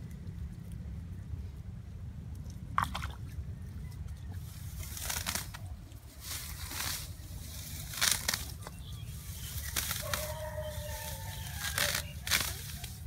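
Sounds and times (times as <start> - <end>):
low rumble: 0.0 - 13.0
muddy water sloshing and squelching: 2.4 - 10.2
short splashes: 2.7 - 3.4.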